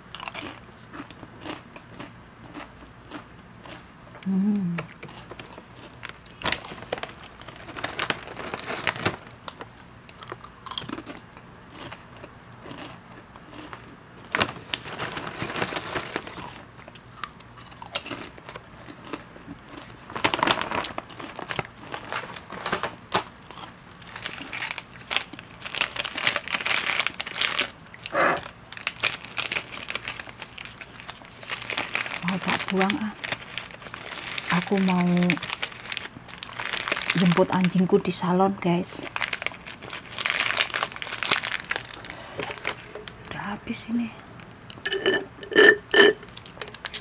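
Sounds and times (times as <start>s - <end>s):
chips crunching while chewed: 0.0s - 37.8s, 39.0s - 43.3s
foil chip bag crinkling: 4.9s - 38.2s, 38.9s - 43.5s.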